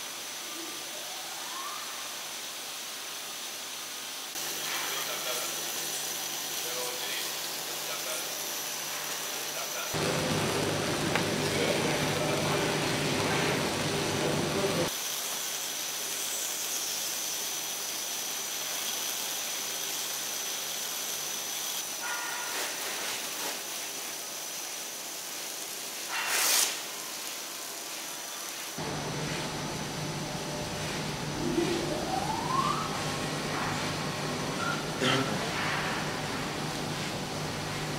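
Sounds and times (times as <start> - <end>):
hiss with high whine: 0.0 - 29.9
machinery low hum: 10.0 - 14.9, 28.8 - 37.9.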